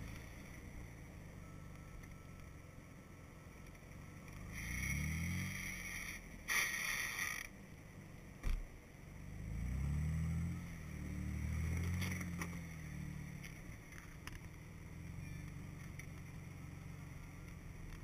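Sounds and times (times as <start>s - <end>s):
engine revving in low gear: 4.3s - 6.3s, 9.2s - 13.6s.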